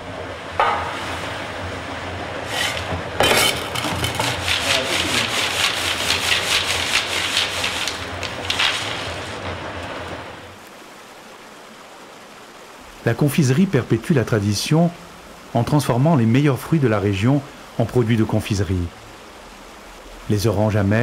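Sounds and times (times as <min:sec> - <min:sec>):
low machine hum: 0:00.0 - 0:06.3
hard sweets rattling in a sieve: 0:03.8 - 0:09.4.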